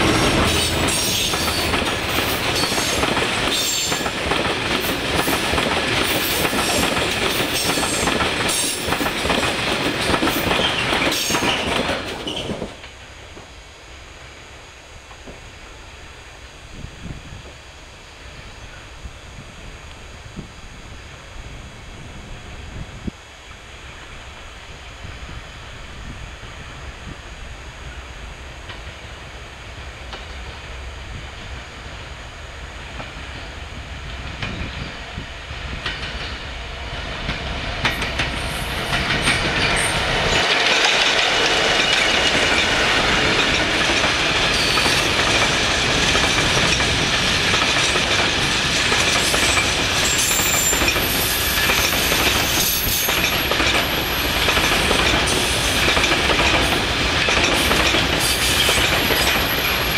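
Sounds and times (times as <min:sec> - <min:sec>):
diesel locomotive passing: 0:00.0 - 0:59.9
high wheel squeal: 0:49.2 - 0:54.4.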